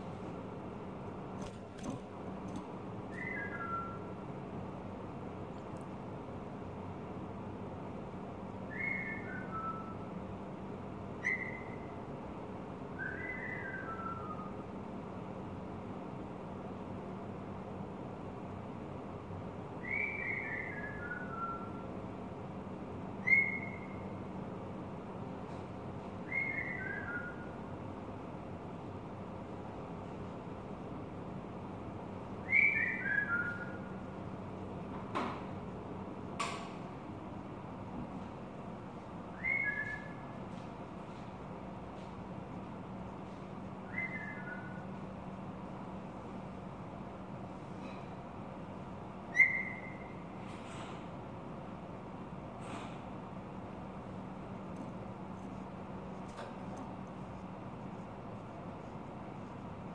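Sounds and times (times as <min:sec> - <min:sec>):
bird whistling song: 0:03.1 - 0:04.2, 0:08.7 - 0:10.2, 0:11.2 - 0:12.0, 0:13.0 - 0:14.6, 0:19.8 - 0:21.9, 0:23.2 - 0:24.0, 0:26.2 - 0:27.6, 0:32.4 - 0:34.0, 0:39.3 - 0:40.2, 0:43.8 - 0:44.9, 0:49.3 - 0:50.2
steady low hum: 0:27.0 - 0:59.9.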